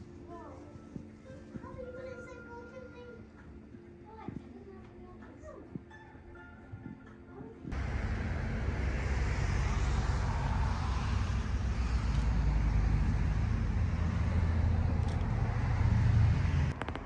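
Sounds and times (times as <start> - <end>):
moving vehicle rumble: 7.7 - 17.0
road and wind noise: 7.7 - 17.0.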